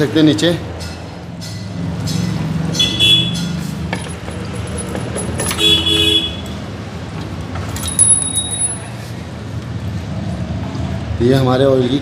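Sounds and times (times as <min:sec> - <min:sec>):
road traffic: 0:00.0 - 0:12.0
vehicle horn tooting: 0:02.8 - 0:03.5, 0:05.5 - 0:06.6.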